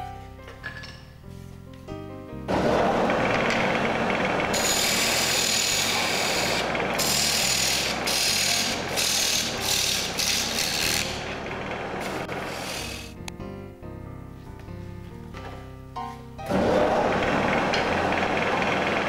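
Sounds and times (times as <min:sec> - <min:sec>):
lathe tool scraping spinning wood: 0:02.5 - 0:13.2, 0:16.5 - 0:19.0.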